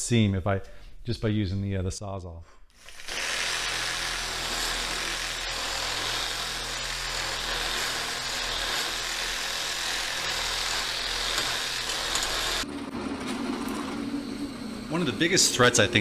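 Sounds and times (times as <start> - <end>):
reciprocating saw running: 2.8 - 12.7
file grinding inside steel tube: 2.9 - 12.6.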